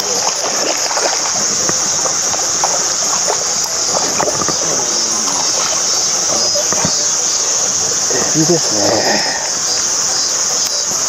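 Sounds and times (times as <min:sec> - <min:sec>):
fish splashing in water: 0:00.0 - 0:08.2
high insect buzz: 0:00.0 - 0:11.0.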